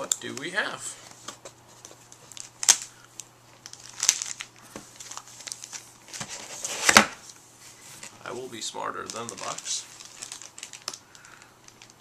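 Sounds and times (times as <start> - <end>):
cardboard and plastic bag crinkling: 1.8 - 7.2, 7.9 - 12.0
sharp crackles: 9.0 - 12.0.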